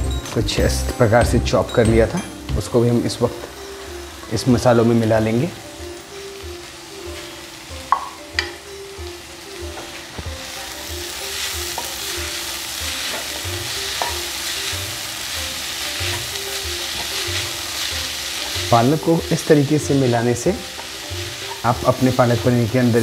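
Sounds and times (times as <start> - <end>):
frying sizzle in pan: 0.0 - 23.0
utensil knocking against pan: 7.9 - 8.6.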